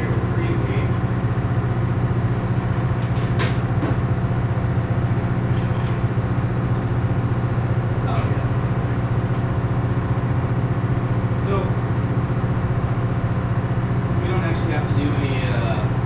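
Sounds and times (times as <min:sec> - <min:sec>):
diesel generators droning: 0:00.0 - 0:16.0.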